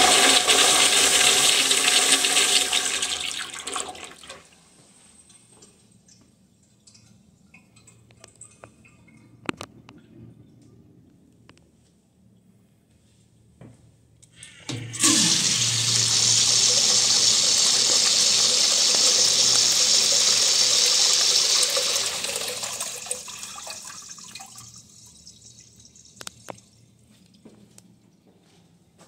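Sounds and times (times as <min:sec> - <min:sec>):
urinal flushing water: 0:00.0 - 0:04.6, 0:14.5 - 0:27.0.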